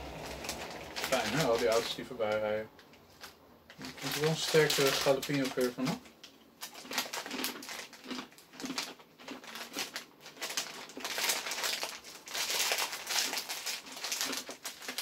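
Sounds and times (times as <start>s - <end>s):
pretzels crunching while chewed: 3.0s - 15.0s.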